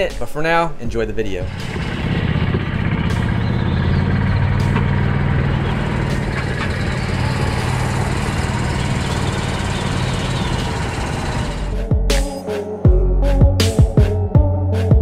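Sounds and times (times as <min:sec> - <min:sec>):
golf cart running: 0:01.5 - 0:11.8.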